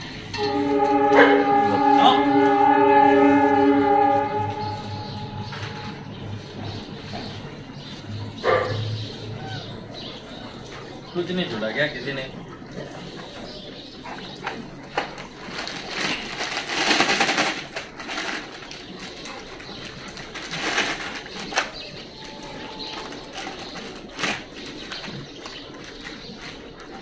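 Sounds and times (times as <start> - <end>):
dogs scrabbling: 6.7 - 27.0
rustling burst: 15.2 - 22.3.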